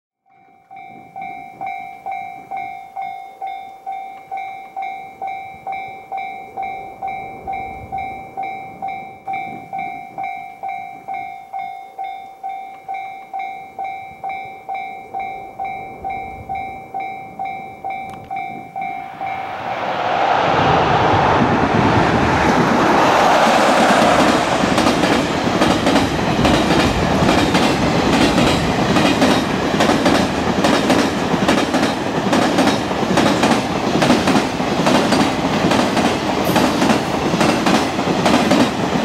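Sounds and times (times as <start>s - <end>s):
level crossing warning bell ringing: 0.3s - 19.1s.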